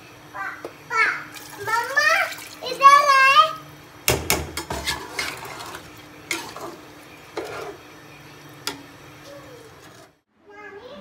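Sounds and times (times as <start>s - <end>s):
metal spoon scraping pot: 4.6s - 7.8s, 9.7s - 10.1s.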